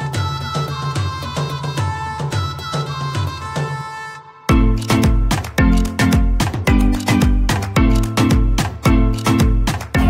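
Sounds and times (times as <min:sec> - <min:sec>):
held instrumental notes: 0:00.0 - 0:10.0
heavy bass beat: 0:04.5 - 0:10.0.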